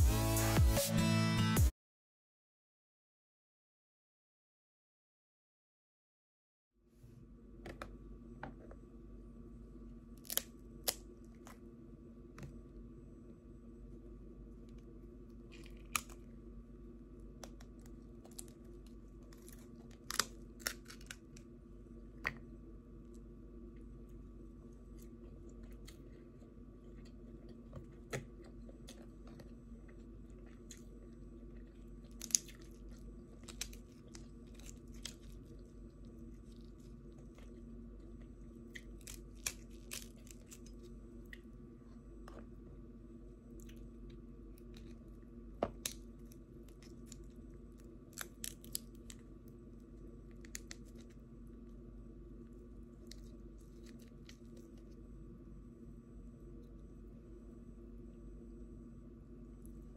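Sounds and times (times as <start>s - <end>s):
faint steady hum: 6.8s - 59.9s
crab shells cracking: 10.2s - 11.6s, 15.5s - 16.3s, 17.4s - 21.5s, 31.8s - 41.4s, 45.7s - 49.5s, 50.3s - 51.2s.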